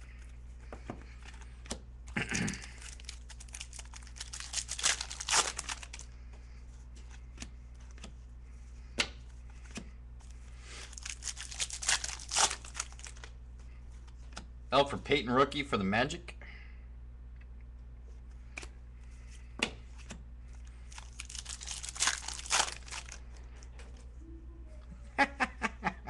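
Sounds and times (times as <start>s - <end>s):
foil wrappers tearing and crinkling: 2.2s - 6.1s, 10.7s - 13.3s, 20.9s - 23.2s.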